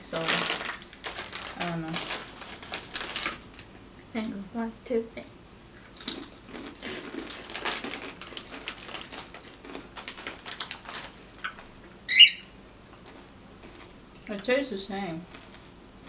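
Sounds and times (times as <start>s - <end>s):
plastic chip bag crinkling: 0.0s - 3.8s, 5.7s - 11.8s, 12.9s - 14.4s, 15.2s - 15.8s.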